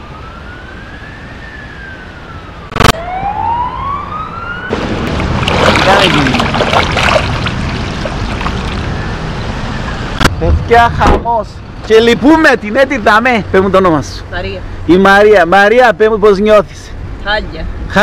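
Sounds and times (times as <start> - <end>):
emergency vehicle siren wailing: 0.0 - 5.1
floodwater rushing down drain: 4.7 - 9.1.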